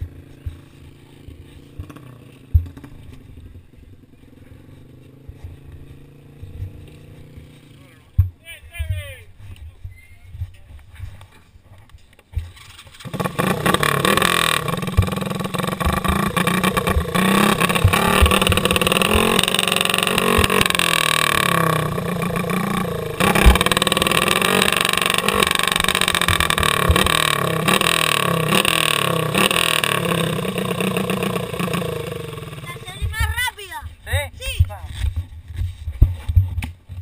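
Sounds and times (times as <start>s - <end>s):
kart engine revving: 0.0s - 3.4s, 12.5s - 33.4s.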